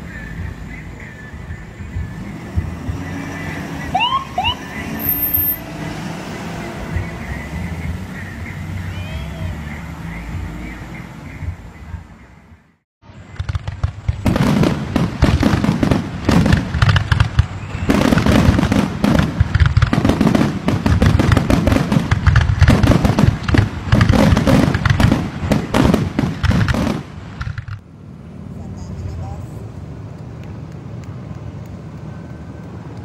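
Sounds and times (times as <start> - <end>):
fireworks bangs and crackling: 13.1 - 27.8.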